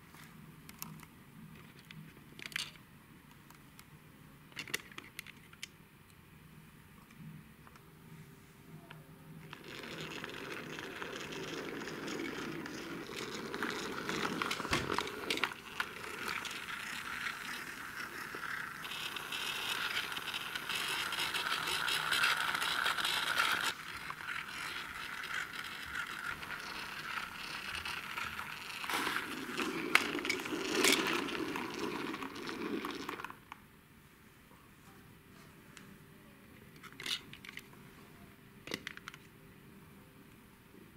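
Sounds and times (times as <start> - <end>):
toy truck wheels clicking whirr: 9.5 - 33.4.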